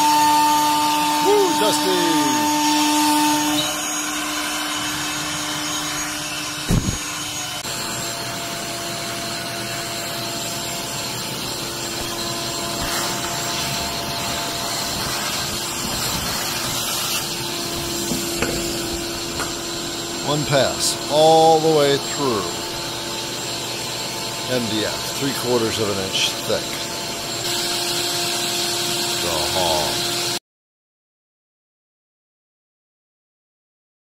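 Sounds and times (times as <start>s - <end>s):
cnc router whine: 0.0s - 30.4s
router cutting noise: 0.0s - 30.4s
low thump: 6.7s - 7.0s.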